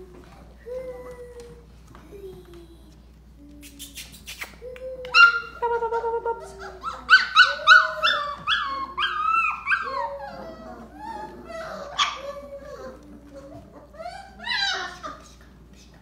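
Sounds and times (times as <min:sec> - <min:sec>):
puppies yelping and whining: 0:05.0 - 0:15.5.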